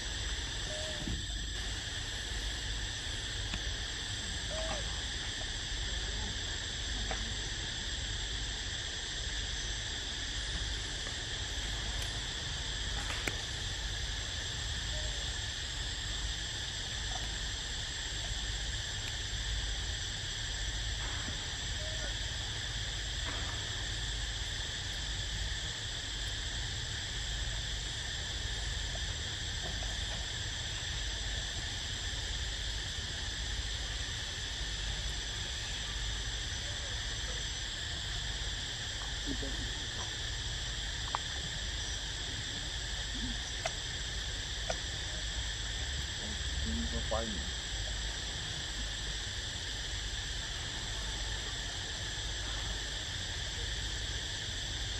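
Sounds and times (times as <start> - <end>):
insects chorus: 0.0 - 54.9.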